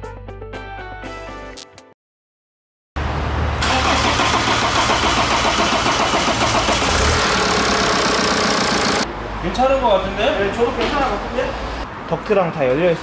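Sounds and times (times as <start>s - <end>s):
diesel engine running: 3.0s - 9.1s.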